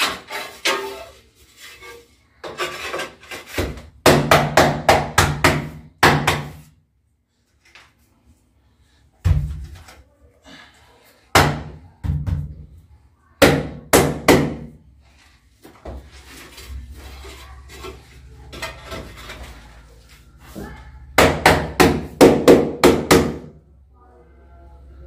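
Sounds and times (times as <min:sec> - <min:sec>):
scraping and handling: 0:00.0 - 0:03.9, 0:15.0 - 0:21.0.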